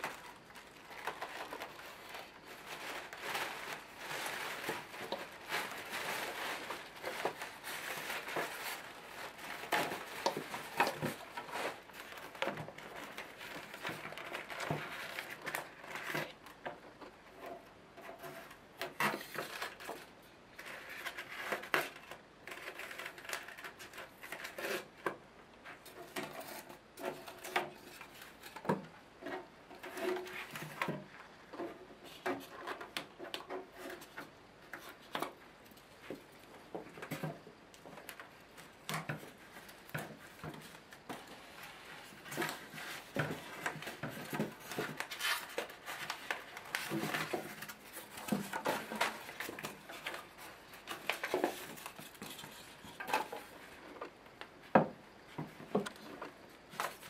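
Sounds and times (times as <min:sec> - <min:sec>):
plastic bag crinkling: 0:00.0 - 0:16.4.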